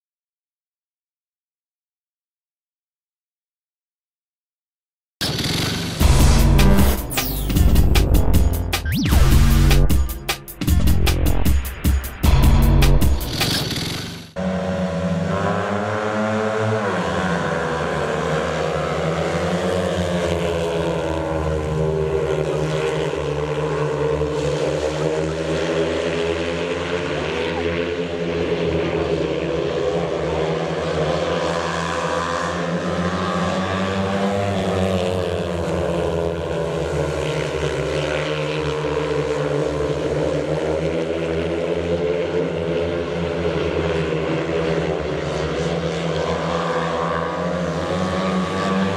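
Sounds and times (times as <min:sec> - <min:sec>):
motorcycle engines racing: 0:05.2 - 0:07.1, 0:13.2 - 0:48.9.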